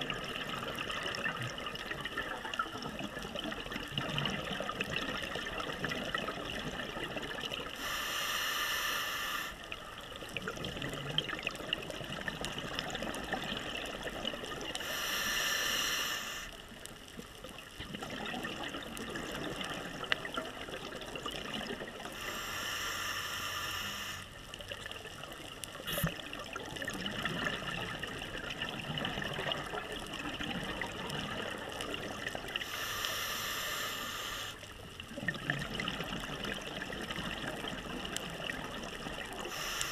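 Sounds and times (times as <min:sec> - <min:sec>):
regulator inhalation hiss: 0:07.8 - 0:09.7, 0:14.8 - 0:16.6, 0:22.2 - 0:24.4, 0:32.6 - 0:34.6, 0:39.4 - 0:39.9
bubbling exhalation: 0:25.8 - 0:32.4.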